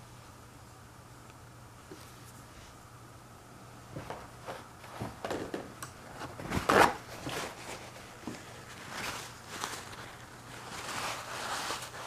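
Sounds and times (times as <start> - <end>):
handling scrapes and rustles: 6.1 - 12.0.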